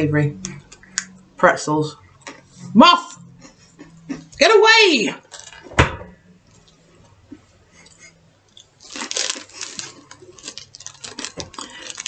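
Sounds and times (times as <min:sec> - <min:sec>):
plastic packaging crinkling: 0:05.3 - 0:05.6, 0:08.8 - 0:12.0.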